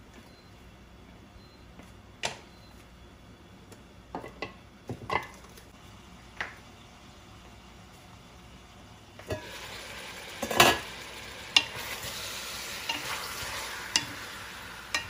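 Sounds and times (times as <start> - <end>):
chicken sizzling in a pan: 7.0 - 15.0.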